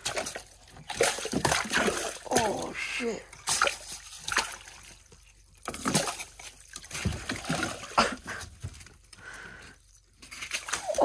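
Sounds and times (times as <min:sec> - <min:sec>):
fish splashing in water: 0:00.0 - 0:11.0.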